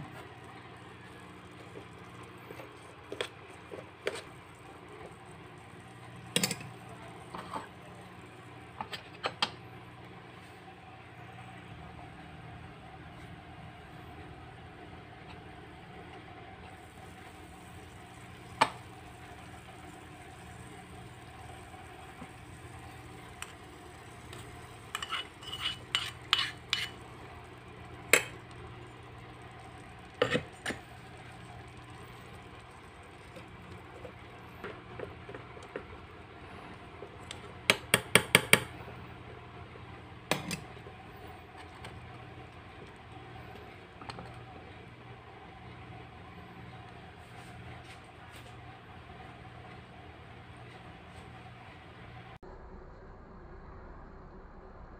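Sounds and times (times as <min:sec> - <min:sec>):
faint steady hum: 0:00.0 - 0:54.9
metal spatula scraping a pan: 0:24.4 - 0:27.0.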